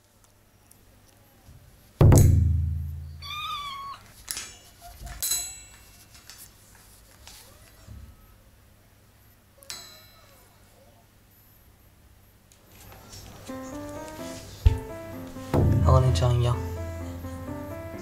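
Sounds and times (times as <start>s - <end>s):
cat meowing: 3.2s - 4.1s
low booming hit: 15.5s - 17.0s.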